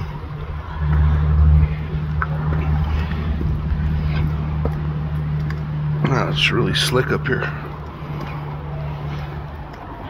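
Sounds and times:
wind buffeting microphone: 0.0 - 6.0
faint footsteps and handling ticks: 6.9 - 10.0.

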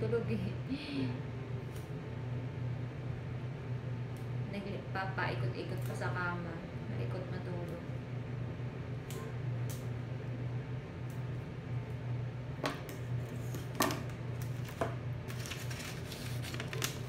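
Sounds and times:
steady low hum: 0.0 - 17.0
hands rustling paper and tape: 14.4 - 17.0.

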